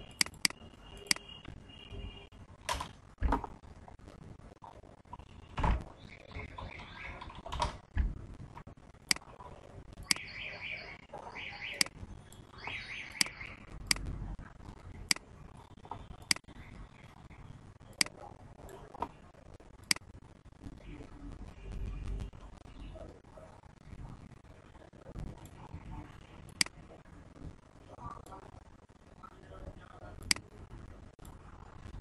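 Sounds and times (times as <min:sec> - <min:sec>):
computer key and mouse clicks: 0:00.2 - 0:01.3.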